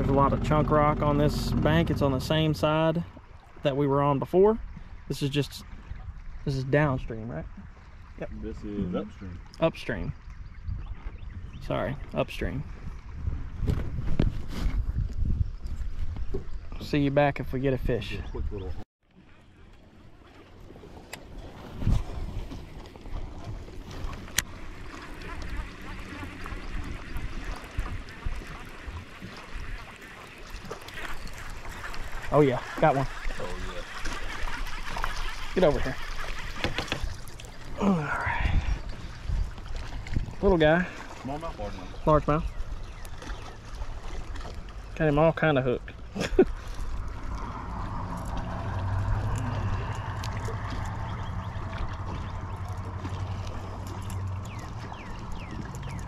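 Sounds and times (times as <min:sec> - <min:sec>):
boat motor humming: 0:00.0 - 0:06.8, 0:07.4 - 0:14.3, 0:18.3 - 0:56.0
water around hull: 0:00.0 - 0:56.0
wind on microphone: 0:10.1 - 0:16.8, 0:21.0 - 0:24.6, 0:34.3 - 0:40.6.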